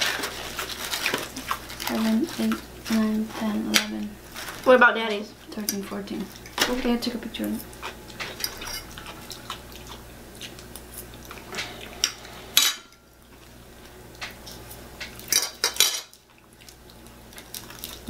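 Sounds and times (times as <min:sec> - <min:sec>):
forks clinking against plates: 0:07.4 - 0:09.2, 0:15.3 - 0:16.1.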